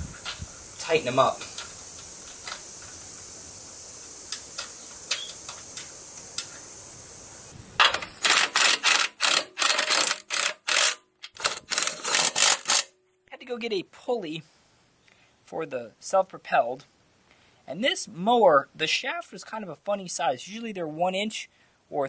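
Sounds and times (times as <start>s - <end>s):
steady hiss: 0.0s - 10.9s, 13.4s - 22.0s
cordless driver rattling bursts: 7.8s - 12.9s.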